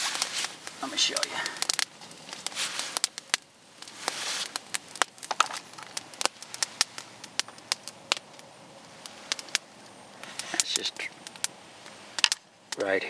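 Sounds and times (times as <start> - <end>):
soft rustle: 0.0 - 7.4
campfire crackling and popping: 0.0 - 13.0.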